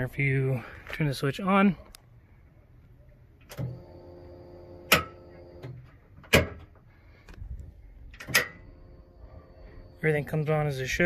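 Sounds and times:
electric fuel pump humming: 0:03.5 - 0:05.8, 0:08.3 - 0:10.2.

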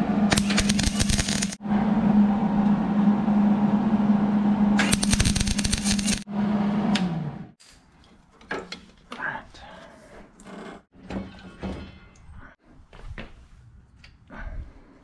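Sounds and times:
welding arc crackle: 0:00.3 - 0:01.6, 0:04.8 - 0:06.3.

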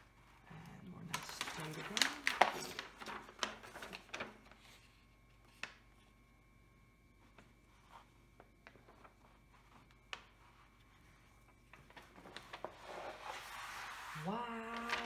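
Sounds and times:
paper sliding over canvas: 0:07.4 - 0:15.0.

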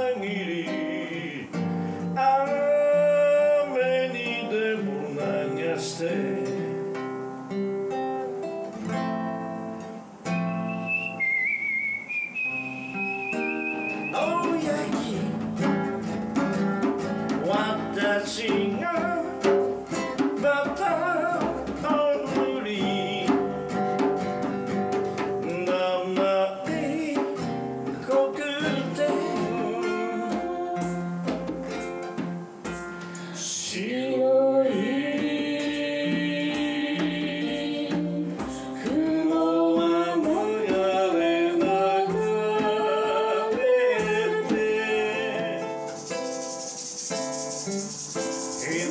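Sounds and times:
person singing: 0:00.0 - 0:06.8, 0:13.1 - 0:15.9, 0:17.3 - 0:19.6, 0:20.2 - 0:24.1, 0:25.4 - 0:31.6, 0:33.1 - 0:48.9
fingerpicked acoustic guitar: 0:00.0 - 0:48.9
thin high tone: 0:10.3 - 0:14.8, 0:45.8 - 0:48.9.

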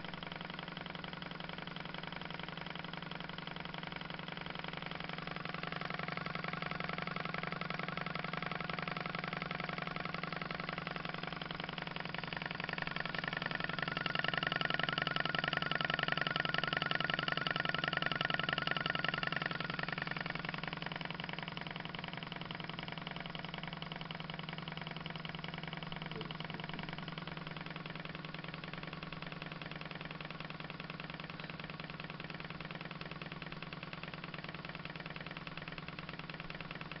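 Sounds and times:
stirling engine running: 0:05.1 - 0:23.7.

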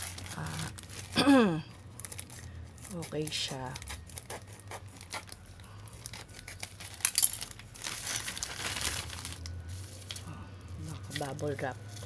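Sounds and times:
plastic pouch crinkling: 0:00.0 - 0:01.2, 0:01.8 - 0:04.2, 0:04.9 - 0:12.0.

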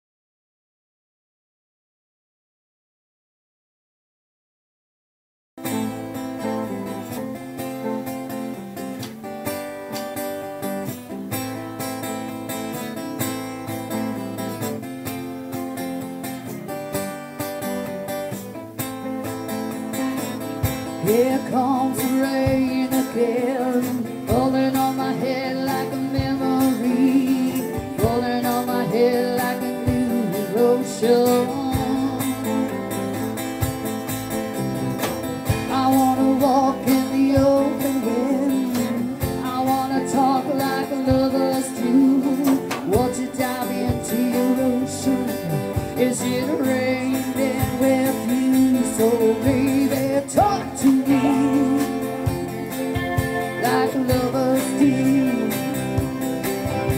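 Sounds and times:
strummed guitars: 0:05.6 - 0:56.9
woman singing: 0:21.0 - 0:32.8, 0:35.6 - 0:52.6, 0:53.2 - 0:56.2.

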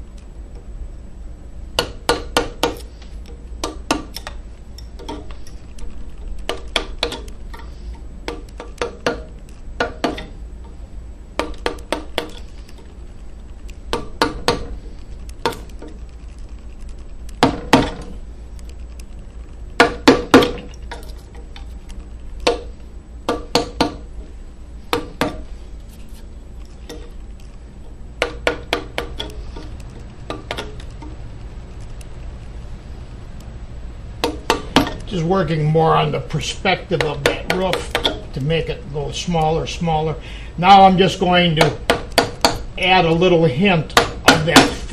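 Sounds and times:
mallet striking chisel: 0:01.8 - 0:02.8, 0:08.3 - 0:10.3, 0:13.9 - 0:14.7, 0:19.8 - 0:20.7, 0:23.3 - 0:24.1, 0:28.2 - 0:29.7, 0:34.2 - 0:35.0, 0:37.0 - 0:38.2, 0:41.6 - 0:42.7, 0:43.9 - 0:44.9.

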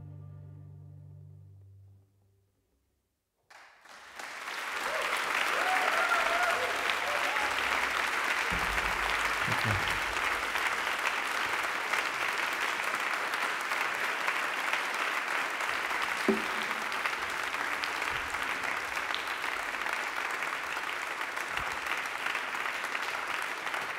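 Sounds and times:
audience applauding: 0:03.5 - 0:23.9
short thump: 0:08.5 - 0:10.3.

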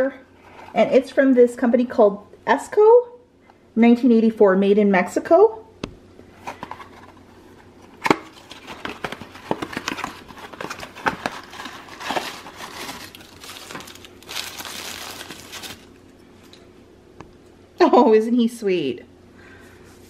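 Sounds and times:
cardboard box handled and opened: 0:08.4 - 0:15.8
tissue paper crinkling: 0:08.4 - 0:16.0.

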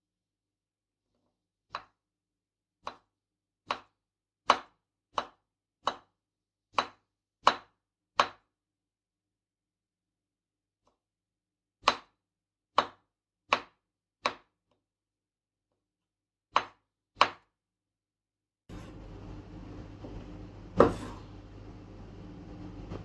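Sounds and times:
knife chopping on wooden board: 0:02.8 - 0:06.1, 0:06.7 - 0:08.5, 0:11.8 - 0:14.5, 0:16.5 - 0:17.5, 0:20.0 - 0:21.3
knife scraping over board: 0:18.7 - 0:19.1, 0:20.8 - 0:21.4
steady low hum: 0:18.7 - 0:23.0.

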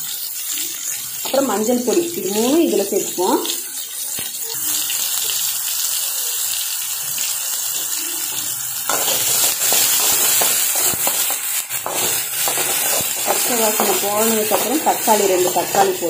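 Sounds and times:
sizzling in hot oil: 0:00.0 - 0:16.0
spatula scraping pan: 0:08.9 - 0:16.0.

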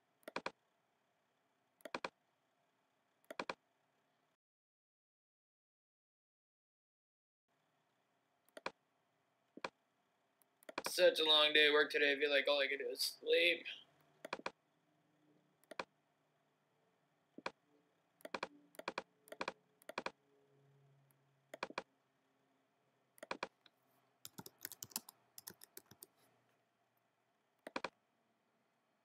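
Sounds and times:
keyboard typing: 0:00.2 - 0:00.6, 0:01.8 - 0:02.2, 0:03.2 - 0:03.6, 0:08.5 - 0:08.8, 0:10.5 - 0:11.0, 0:14.1 - 0:14.6, 0:18.2 - 0:20.2, 0:21.5 - 0:21.9, 0:23.2 - 0:26.2, 0:27.6 - 0:28.0.

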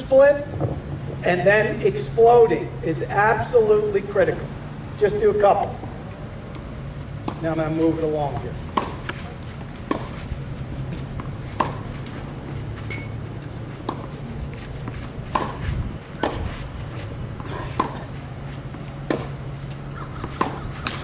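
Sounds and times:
steady low hum: 0:00.0 - 0:21.0
tennis balls struck by rackets: 0:07.2 - 0:12.2, 0:13.8 - 0:21.0.

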